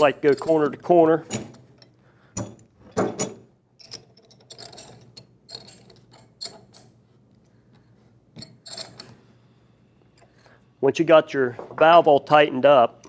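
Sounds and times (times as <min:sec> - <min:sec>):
metal wrenches clinking on bolts: 0:00.0 - 0:06.9, 0:08.4 - 0:09.2.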